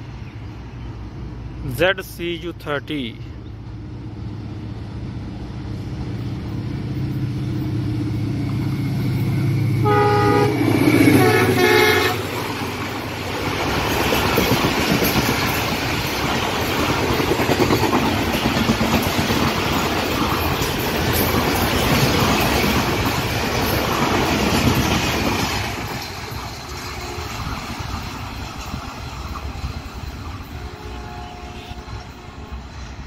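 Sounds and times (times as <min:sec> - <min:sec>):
train horn blasts: 0:09.8 - 0:12.4, 0:26.9 - 0:27.5, 0:30.4 - 0:32.6
wheels clattering over rail joints: 0:11.2 - 0:30.6.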